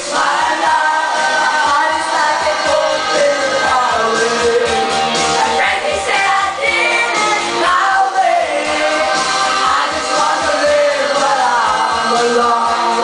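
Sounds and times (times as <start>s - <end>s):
people singing into microphones: 0.0s - 13.0s
rock pop backing track: 0.0s - 13.0s.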